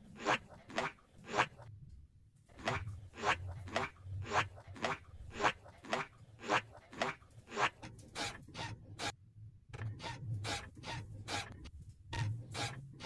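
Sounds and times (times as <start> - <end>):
rhythmic scraping strokes: 2.5 - 9.2.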